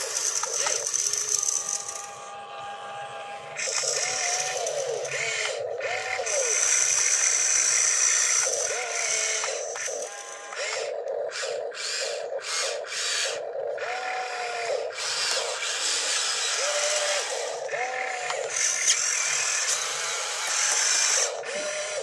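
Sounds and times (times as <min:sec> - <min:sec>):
toy excavator motors whining: 0:00.0 - 0:22.0.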